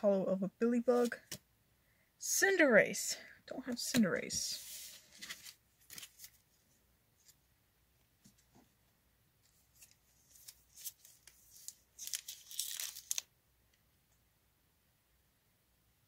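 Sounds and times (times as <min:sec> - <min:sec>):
foil wrapper crinkling: 0:09.8 - 0:13.3
foil pack tearing open: 0:12.0 - 0:13.2.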